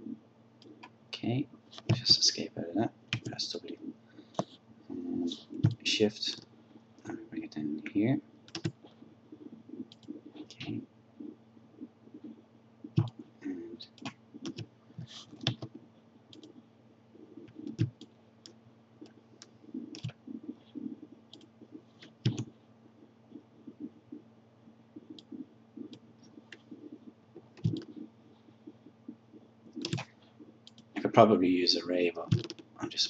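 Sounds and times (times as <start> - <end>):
faint steady low hum: 0.0 - 33.0
computer mouse clicks: 8.5 - 9.0, 9.8 - 10.7, 13.0 - 13.2, 13.9 - 16.6, 17.4 - 22.5, 27.5 - 28.1, 29.7 - 30.9, 32.3 - 32.7.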